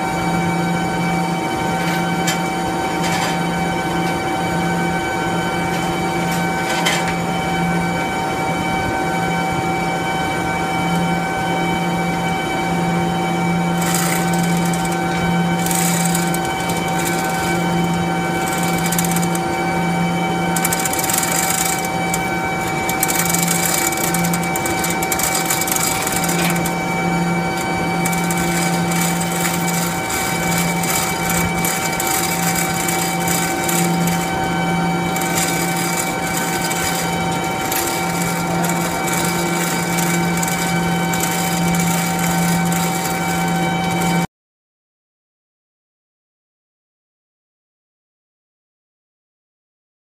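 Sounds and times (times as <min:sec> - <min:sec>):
steady machine hum: 0:00.0 - 0:44.3
chain rattling through hoist: 0:01.7 - 0:04.2, 0:13.7 - 0:44.3.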